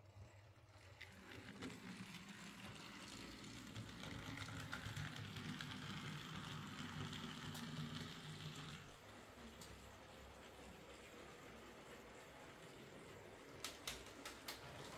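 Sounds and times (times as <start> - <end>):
model train motor whirring: 0.8 - 8.9.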